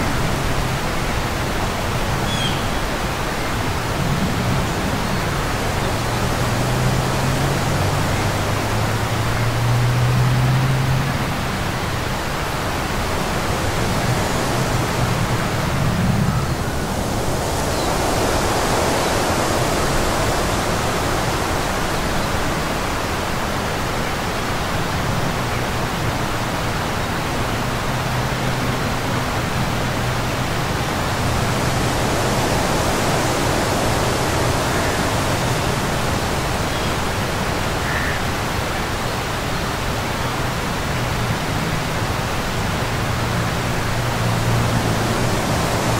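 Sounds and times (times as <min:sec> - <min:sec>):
steady rushing noise: 0:00.0 - 0:45.9.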